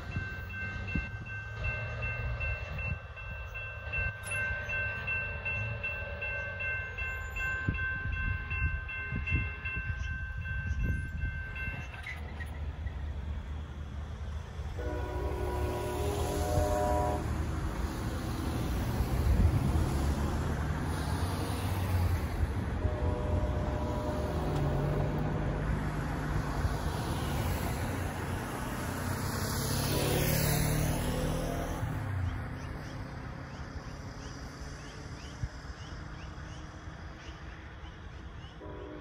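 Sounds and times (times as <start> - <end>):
cars driving past: 12.1 - 37.1
train horn: 14.7 - 17.6, 22.6 - 25.6, 29.8 - 31.7, 38.6 - 39.0.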